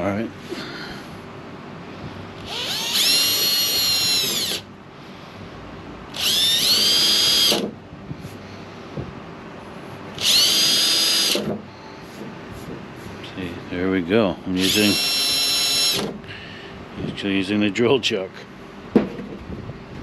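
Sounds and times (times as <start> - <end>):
electric drill motor whine: 2.4 - 4.7, 6.1 - 7.7, 10.2 - 11.6, 14.6 - 16.2.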